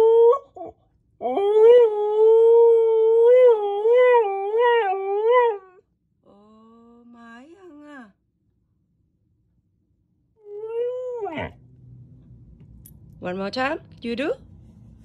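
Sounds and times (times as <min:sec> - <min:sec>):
dog howling: 0:00.0 - 0:05.8, 0:10.4 - 0:11.6
fainter lower howl: 0:10.4 - 0:12.3.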